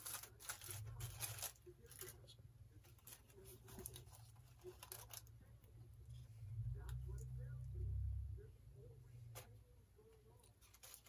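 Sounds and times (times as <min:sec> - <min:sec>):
aluminium foil crinkling: 0:00.0 - 0:05.7, 0:10.4 - 0:11.0.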